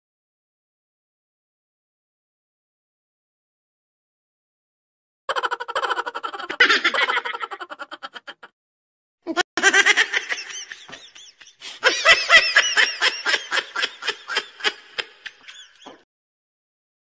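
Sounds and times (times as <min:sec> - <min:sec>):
woman laughing hard: 0:05.3 - 0:08.5, 0:09.3 - 0:16.0.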